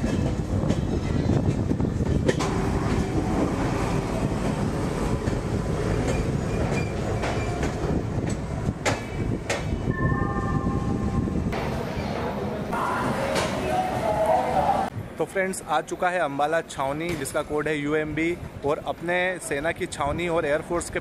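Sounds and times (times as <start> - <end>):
train wheels rumbling on rail: 0.0 - 9.9.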